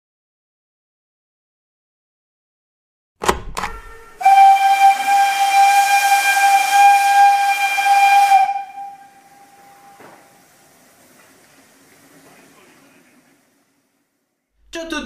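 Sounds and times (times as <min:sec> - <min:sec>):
loud steady whistle: 0:03.7 - 0:10.6.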